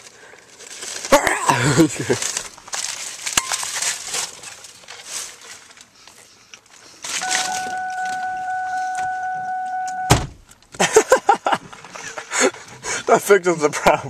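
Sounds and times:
window glass thudding shut: 10.1s - 10.4s.

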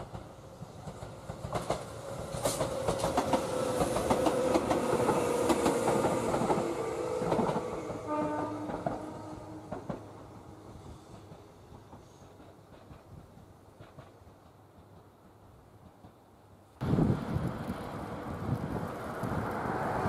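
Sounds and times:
train wheels clacking: 0.0s - 10.3s, 10.9s - 16.3s
electric train hum: 0.0s - 20.0s.

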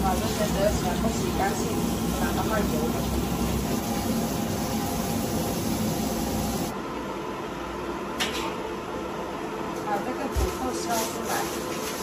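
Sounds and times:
kitchen tap running: 0.0s - 6.7s.

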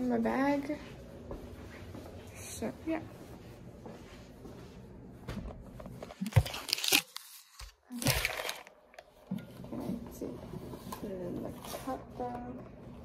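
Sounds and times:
plastic crinkling and rustling: 5.9s - 12.6s.

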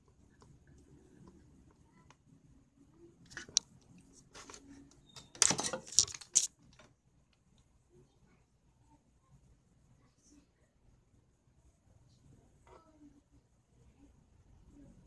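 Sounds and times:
scraping and clicks: 3.3s - 6.9s.

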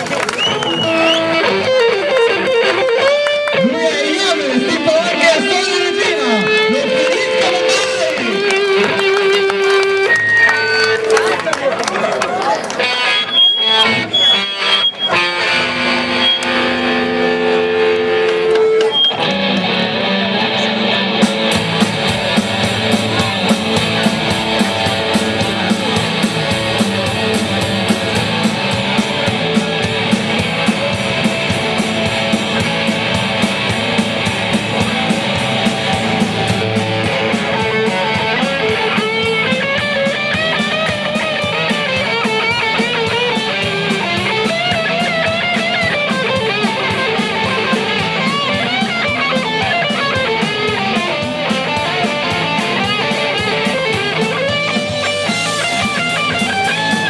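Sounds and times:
held guitar notes: 0.0s - 11.5s, 12.7s - 57.0s
lead electric guitar bent notes: 0.0s - 11.5s, 12.7s - 57.0s
rock band playing: 0.0s - 57.0s
steady drum beat: 21.1s - 57.0s.

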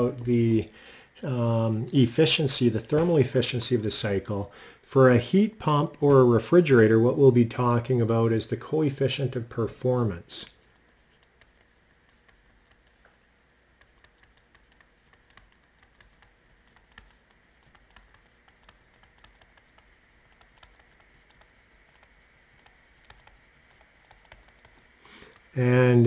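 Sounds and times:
low hiss: 0.0s - 26.0s
stylus tapping on tablet screen: 10.7s - 25.5s.

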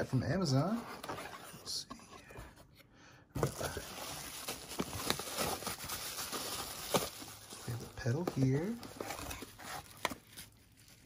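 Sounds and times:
bubble wrap crinkling: 3.4s - 11.0s.

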